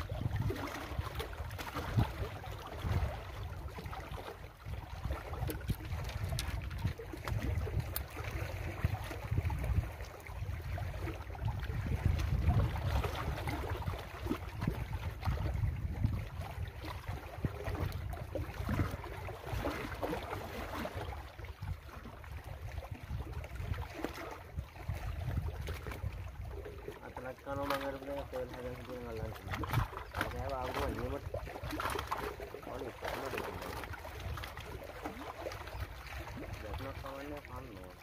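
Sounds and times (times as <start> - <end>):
wind gusting on microphone: 0.0 - 19.9, 21.6 - 26.7
small waves lapping: 0.0 - 38.0.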